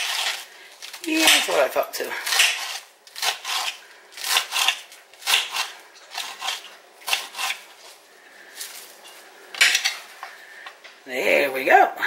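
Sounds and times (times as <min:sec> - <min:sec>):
knife slicing crisp lettuce: 0:00.0 - 0:07.7.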